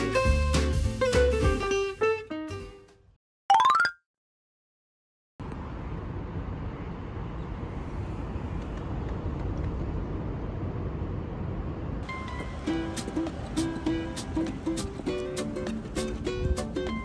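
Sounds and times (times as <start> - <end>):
passing traffic rumble: 5.4 - 17.0
plucked string music: 12.1 - 17.0.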